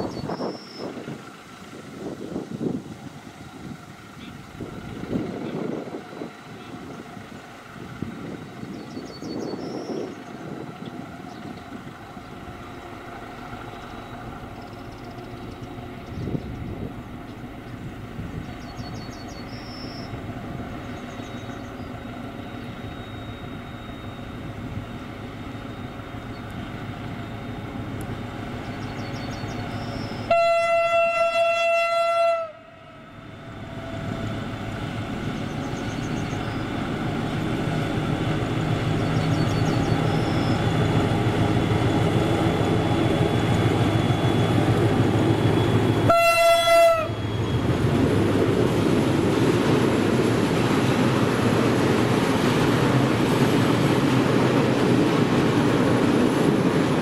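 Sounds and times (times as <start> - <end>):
diesel locomotive engine rumble: 0.0 - 57.0
locomotive horn: 30.2 - 33.6, 45.9 - 47.2.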